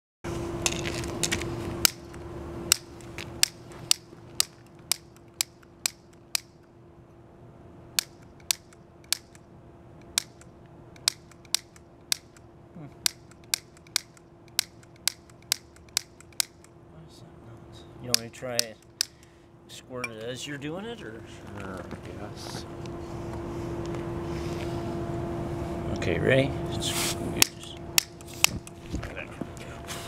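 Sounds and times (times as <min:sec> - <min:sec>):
steady low hum: 0:00.3 - 0:30.0
sharp clicks: 0:01.8 - 0:06.7, 0:08.0 - 0:09.4, 0:10.0 - 0:16.8, 0:18.1 - 0:19.3, 0:27.4 - 0:28.8.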